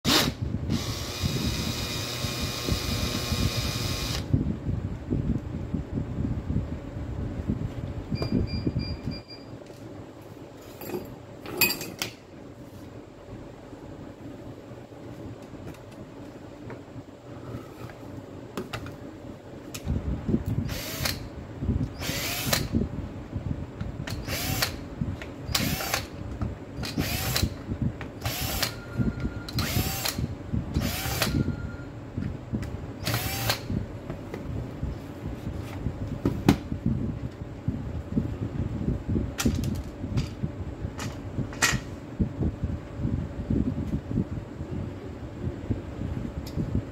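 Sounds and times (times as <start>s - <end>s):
cordless drill whirring: 0.1s - 4.3s, 20.7s - 21.2s, 22.0s - 22.7s, 24.2s - 24.8s, 25.6s - 26.1s, 26.9s - 27.5s, 28.2s - 28.8s, 29.5s - 30.2s, 30.8s - 31.5s, 33.0s - 33.7s.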